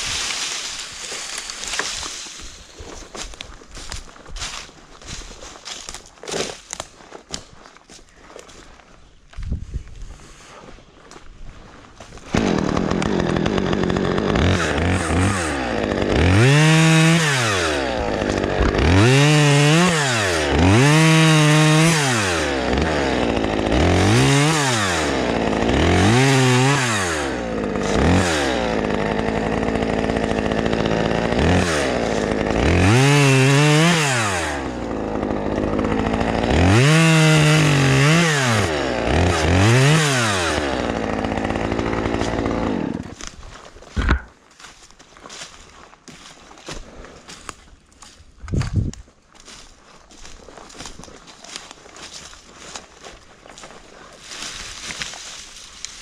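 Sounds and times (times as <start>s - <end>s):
chainsaw revving and idling: 0.0s - 5.8s, 12.1s - 45.5s, 49.4s - 56.0s.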